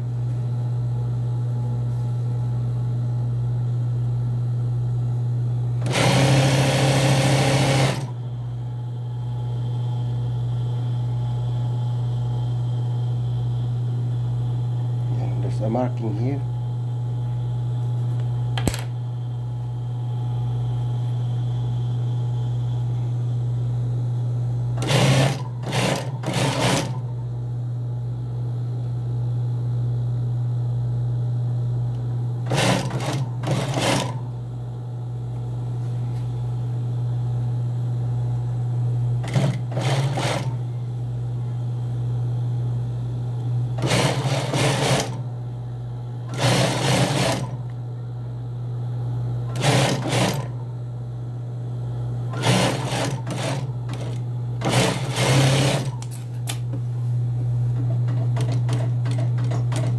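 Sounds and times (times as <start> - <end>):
steady low hum: 0.0 - 59.9
industrial sewing machine stitching: 5.8 - 8.2, 24.8 - 27.0, 32.4 - 34.2, 39.2 - 40.6, 43.8 - 45.2, 46.3 - 47.6, 49.5 - 50.6, 52.3 - 56.0, 58.0 - 59.9.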